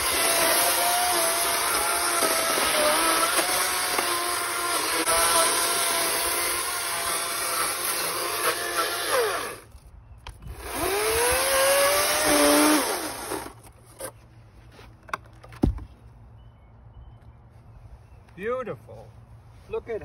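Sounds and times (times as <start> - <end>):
electric chainsaw cutting log: 0.0 - 9.8, 10.4 - 13.7
knocks and thump: 15.1 - 16.0.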